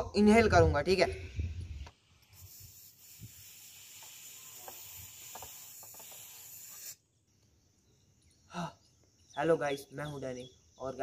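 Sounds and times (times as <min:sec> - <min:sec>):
air hissing out of balloon: 0:01.9 - 0:07.0
rubbery rubs: 0:02.3 - 0:07.0.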